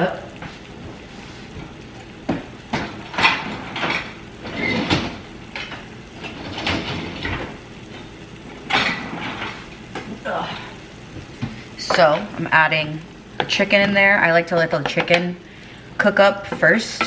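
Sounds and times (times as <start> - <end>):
dishes clunking and clattering: 1.6 - 10.1
dishwasher rack rolling out: 2.7 - 9.8.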